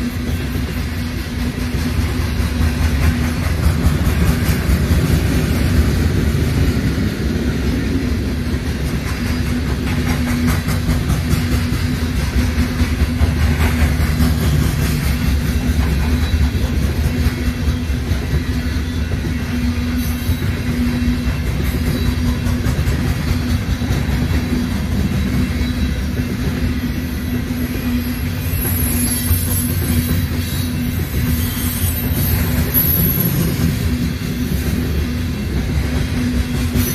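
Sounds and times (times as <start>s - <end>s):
train wheels rumbling on rail: 0.0s - 36.9s
rapid clicking of wheels: 8.6s - 19.2s.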